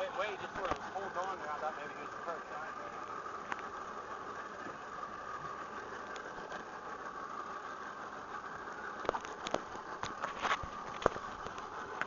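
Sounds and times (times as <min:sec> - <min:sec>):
boat engine humming: 0:00.0 - 0:12.0
faint clicks: 0:05.9 - 0:06.6.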